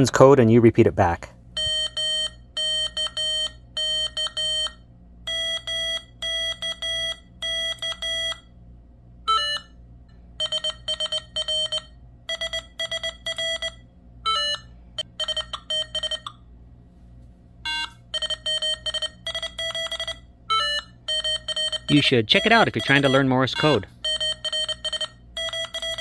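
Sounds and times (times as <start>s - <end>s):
morse code beeping: 1.6s - 8.5s, 9.2s - 9.8s, 10.4s - 16.4s, 17.6s - 26.0s
short beeps at different pitch: 17.7s - 26.0s.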